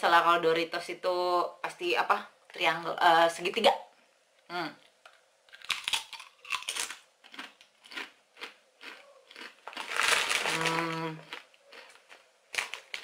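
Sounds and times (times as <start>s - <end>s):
chip crunching: 4.8s - 13.0s
person humming mmm: 10.5s - 11.3s.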